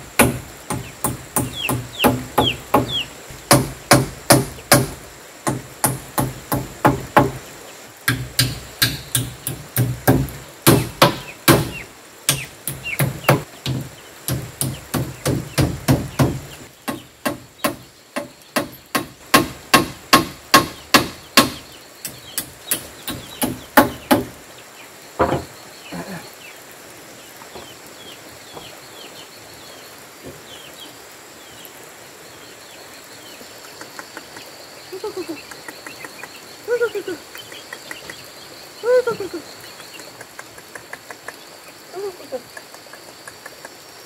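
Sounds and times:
hammer driving nails into wood: 0.2 - 7.4, 8.1 - 24.4.

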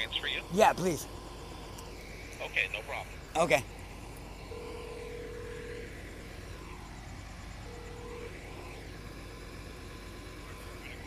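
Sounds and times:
low background hum: 0.0 - 11.0
telephone line tone: 4.4 - 6.0, 7.6 - 8.8.

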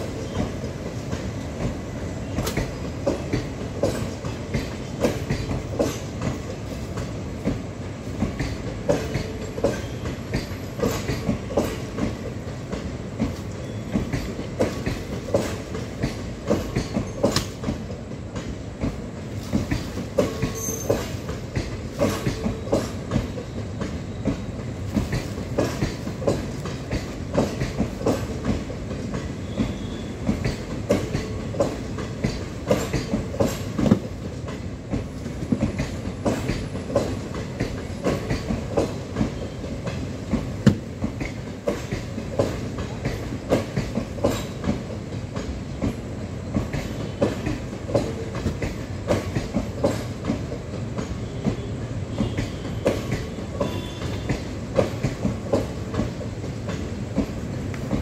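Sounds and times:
train wheels rumbling on rails: 0.0 - 58.0
wheels clacking over rail joints: 0.1 - 58.0.

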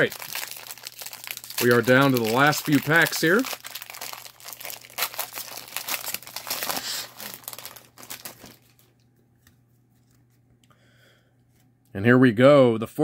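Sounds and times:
plastic wrapper crinkling: 0.0 - 9.1.

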